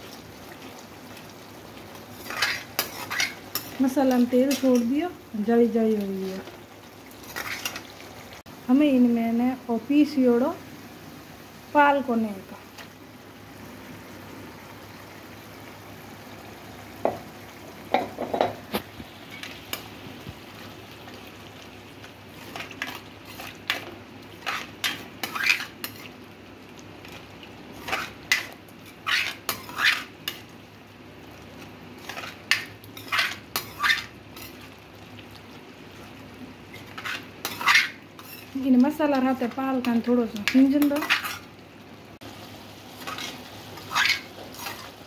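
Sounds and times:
low sizzle: 0.0s - 45.0s
spoon scraping and clinking on pan: 2.2s - 4.9s, 32.0s - 34.6s, 36.8s - 38.6s, 40.5s - 41.5s.

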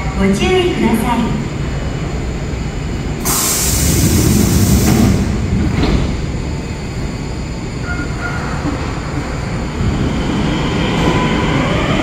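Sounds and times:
train low rumble: 0.0s - 12.0s
compressed air hiss: 3.2s - 5.1s.

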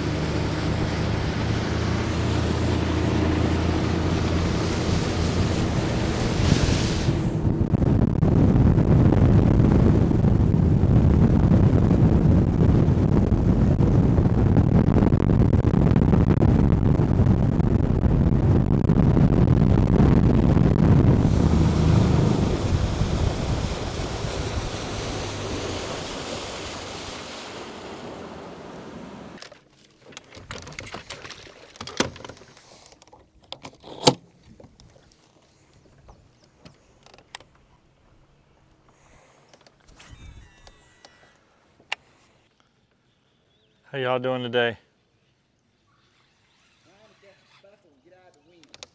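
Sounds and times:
rushing water: 0.0s - 7.5s, 20.8s - 29.4s
outboard motor rumble: 0.0s - 43.5s
wind: 0.0s - 48.9s.

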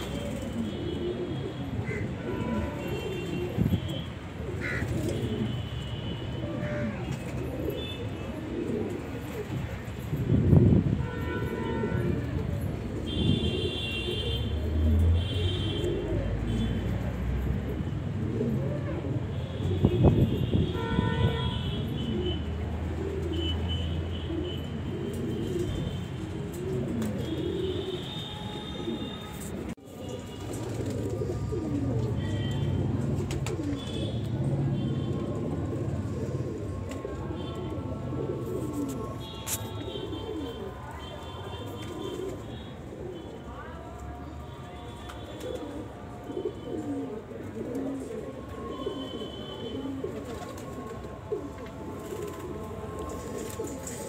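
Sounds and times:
pigeons cooing: 0.0s - 43.6s, 45.1s - 54.0s.

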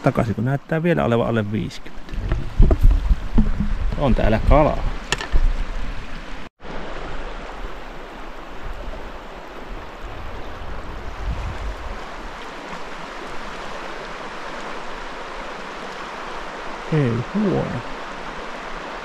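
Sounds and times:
river water rushing: 4.6s - 19.0s.

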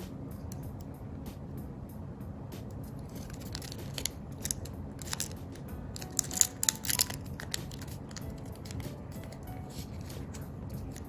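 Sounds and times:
paper crinkling while folded: 3.0s - 11.0s.

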